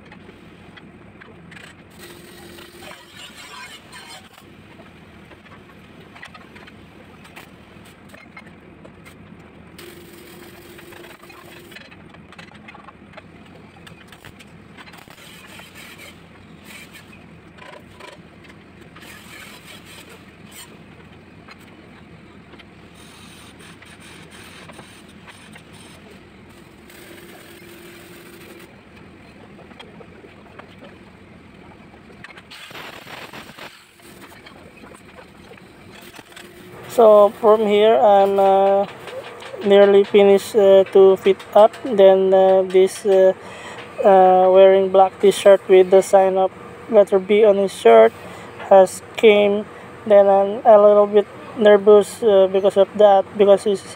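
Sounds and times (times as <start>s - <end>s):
workshop machines running: 0.0s - 53.9s
welding crackles: 1.6s - 4.5s, 9.8s - 12.4s, 13.8s - 18.2s, 19.0s - 20.8s, 23.0s - 28.8s, 32.2s - 53.6s.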